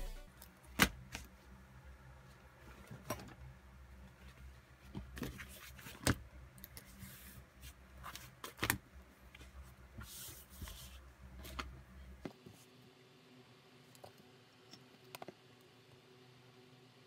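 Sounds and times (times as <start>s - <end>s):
low steady hum: 0.0s - 8.3s.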